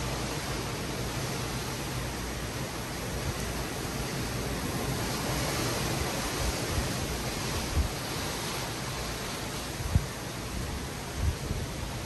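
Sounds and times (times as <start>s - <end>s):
wind and rain rushing: 0.0s - 12.0s
wind buffeting microphone: 3.0s - 12.0s.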